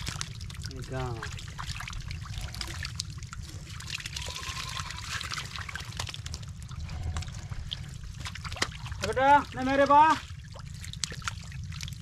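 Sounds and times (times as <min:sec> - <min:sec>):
muddy water pouring and trickling: 0:00.0 - 0:12.0
small splashes: 0:07.7 - 0:12.0.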